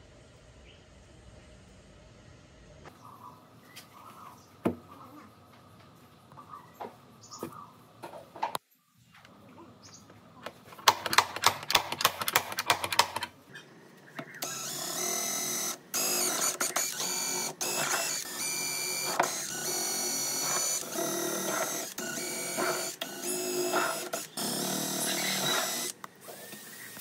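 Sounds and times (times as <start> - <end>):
sharp clicks: 10.8 - 13.3
small power tool motor running: 14.4 - 27.0.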